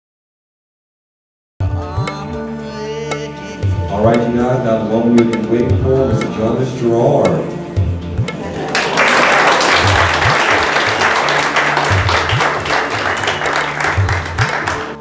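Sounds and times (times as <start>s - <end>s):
music with repeating bass line: 1.6s - 8.8s, 9.4s - 15.0s
audience applauding: 8.4s - 15.0s.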